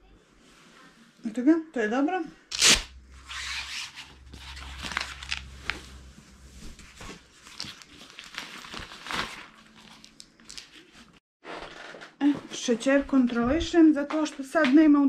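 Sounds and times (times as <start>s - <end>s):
fabric cuff rustling and crinkling: 3.3s - 11.2s.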